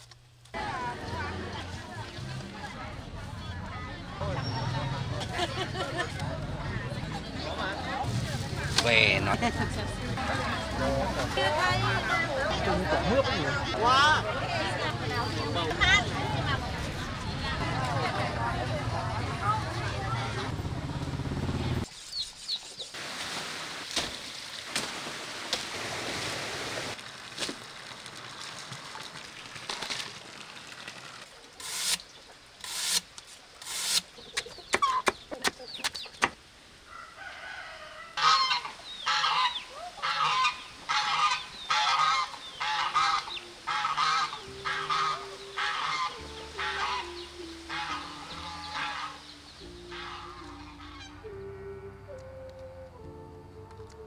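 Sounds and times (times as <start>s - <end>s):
geese honking: 37.0s - 52.4s
soft background music: 41.2s - 54.0s.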